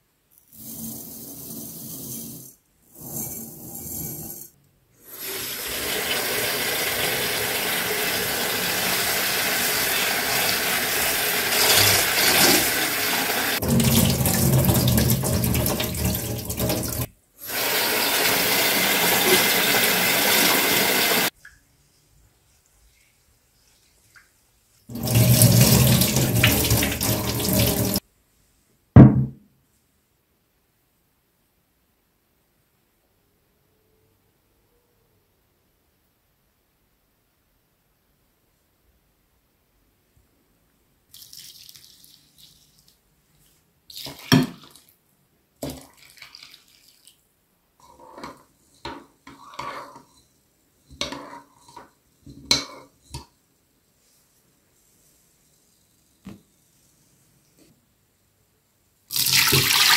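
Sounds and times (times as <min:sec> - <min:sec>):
tap water running into bowl: 0:05.4 - 0:21.3, 0:24.9 - 0:28.0, 0:59.1 - 0:59.9
water pouring into bowl: 0:11.4 - 0:17.1, 0:24.9 - 0:28.0, 0:59.1 - 0:59.9.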